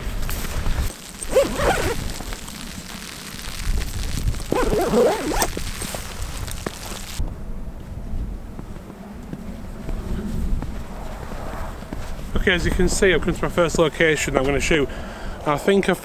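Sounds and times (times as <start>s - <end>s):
backpack unzipping: 1.0s - 2.8s, 3.4s - 6.8s
wind rumble on microphone: 3.5s - 15.4s.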